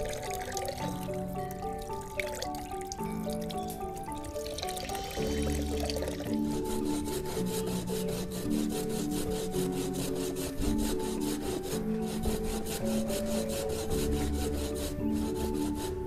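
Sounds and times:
soft background music: 0:00.0 - 0:16.0
coconut scraping on metal grater: 0:04.8 - 0:16.0.

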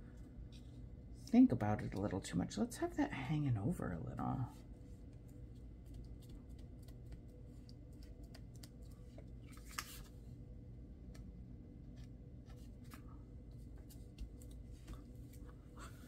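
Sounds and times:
low steady hum: 0:00.0 - 0:16.0
small taps on paper: 0:05.8 - 0:08.8
paper rustling: 0:07.9 - 0:10.2.

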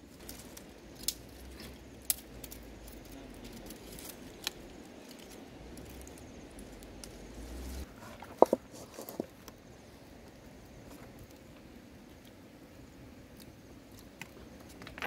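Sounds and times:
low steady rumble: 0:00.0 - 0:08.7
twigs snapping: 0:00.1 - 0:07.8.

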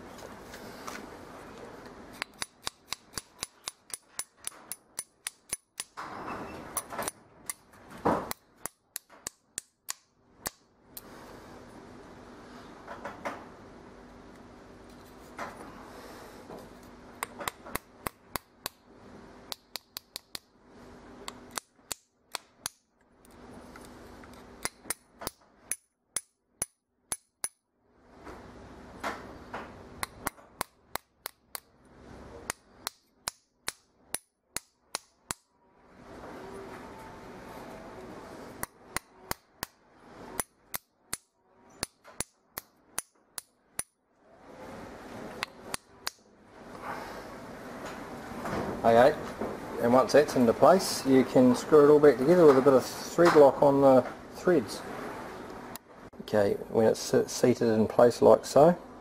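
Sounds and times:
hammer tapping metal: 0:02.2 - 0:06.0, 0:08.3 - 0:10.7, 0:19.5 - 0:20.5, 0:24.6 - 0:27.6, 0:30.0 - 0:31.7, 0:32.4 - 0:35.5, 0:38.6 - 0:39.8, 0:40.4 - 0:44.0.

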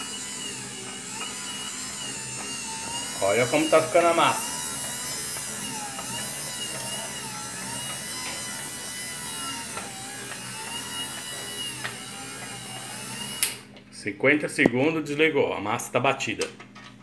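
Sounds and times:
electric mixer motor whining: 0:00.0 - 0:13.7.

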